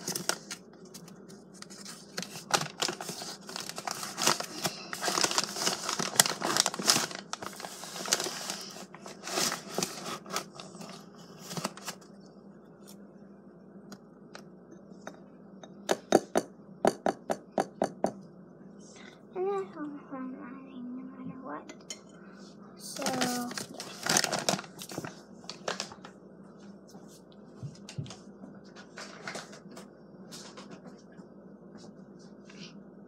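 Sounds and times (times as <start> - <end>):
paper bag crinkling: 0.0 - 12.0, 22.9 - 26.1.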